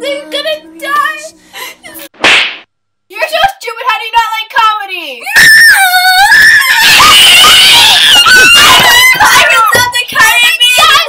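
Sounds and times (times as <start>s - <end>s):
girls screaming: 5.2s - 11.0s.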